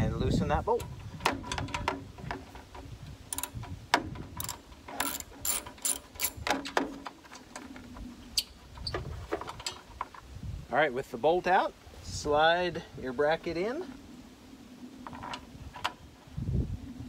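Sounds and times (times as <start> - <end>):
socket ratchet pawl clicking: 3.3 - 3.7, 4.4 - 6.4.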